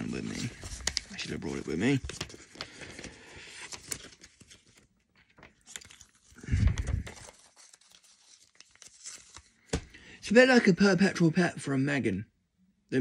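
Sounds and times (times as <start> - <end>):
paper leaflet crinkling: 0.0 - 9.9.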